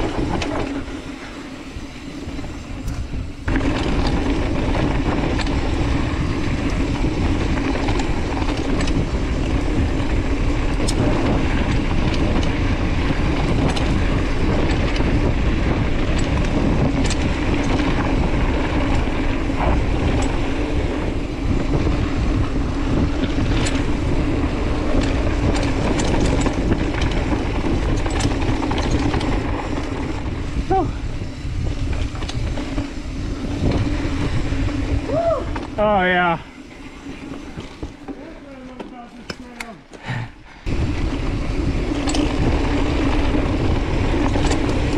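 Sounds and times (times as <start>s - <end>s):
wind on microphone: 0.0s - 39.1s, 40.2s - 44.9s
bike rattling: 0.0s - 44.9s
bike tyres rumbling on dirt: 0.0s - 44.9s
sharp clicks and knocks: 7.6s - 9.4s, 13.3s - 20.5s, 23.0s - 24.1s, 24.8s - 30.2s, 41.9s - 42.9s, 44.0s - 44.9s.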